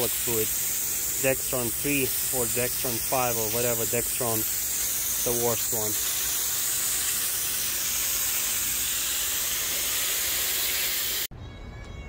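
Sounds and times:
hose spray hissing: 0.0s - 11.3s.

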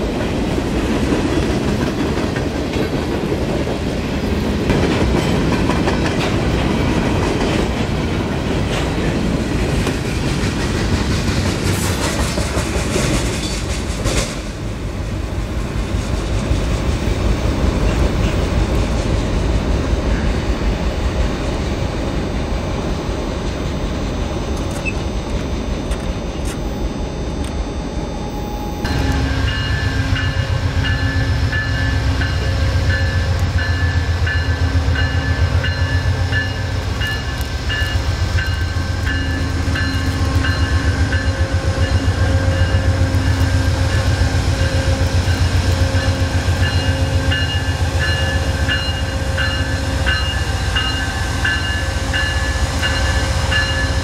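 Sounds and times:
diesel locomotive engine drone: 0.0s - 54.0s
high ringing tone: 23.7s - 54.0s.

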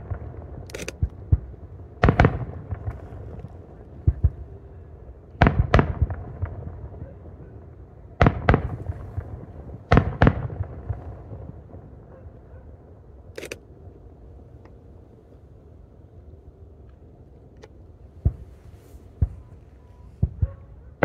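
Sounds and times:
fireworks booming: 0.0s - 4.6s, 5.4s - 12.2s, 18.1s - 20.8s.

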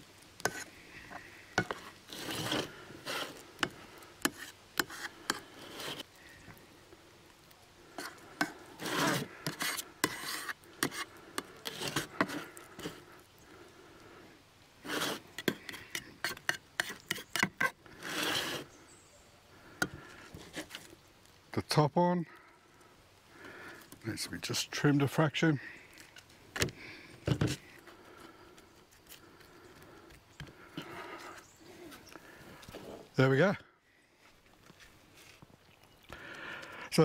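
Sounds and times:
knife scraping a pan: 0.4s - 0.8s, 1.6s - 6.1s, 8.0s - 13.0s, 14.8s - 18.7s.

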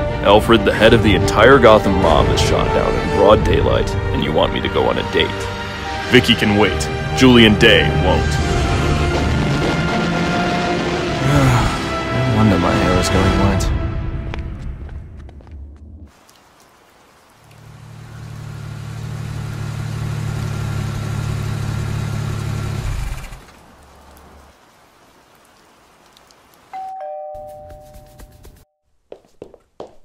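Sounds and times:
rain falling: 1.2s - 13.4s, 15.4s - 27.1s
low car engine rumble: 17.5s - 23.8s
two-tone doorbell chime: 26.7s - 28.8s.

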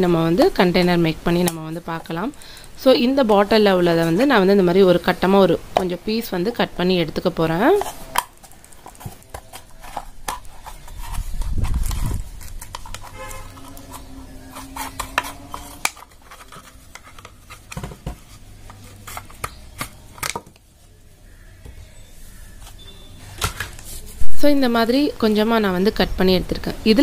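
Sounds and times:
faint drawn-out tone: 22.8s - 23.3s.

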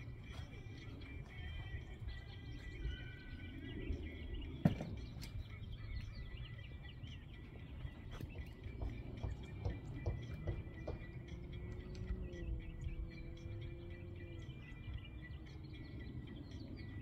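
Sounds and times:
small birds chirping: 0.0s - 17.0s
wind rumble on microphone: 0.0s - 17.0s.

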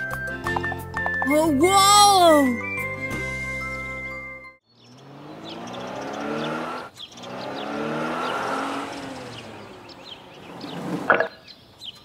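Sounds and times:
birds chirping: 4.6s - 12.0s.

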